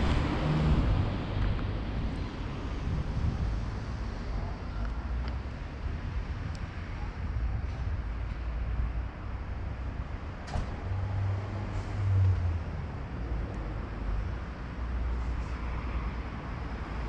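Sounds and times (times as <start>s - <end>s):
road traffic rumble: 0.0s - 17.0s
vehicle engine hum: 0.0s - 17.0s.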